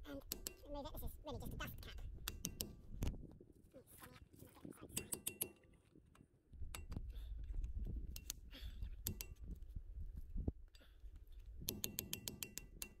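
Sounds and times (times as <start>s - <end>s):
screwdriver tapping metal: 0.2s - 0.7s, 2.2s - 2.8s, 5.0s - 5.6s, 9.0s - 9.5s, 11.6s - 13.0s.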